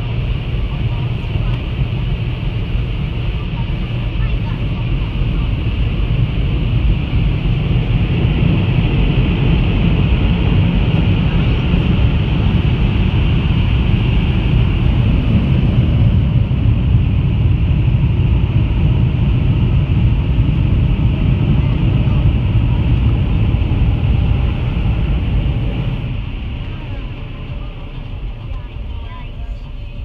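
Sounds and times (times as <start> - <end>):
car wash air blowers rushing: 0.0 - 30.0.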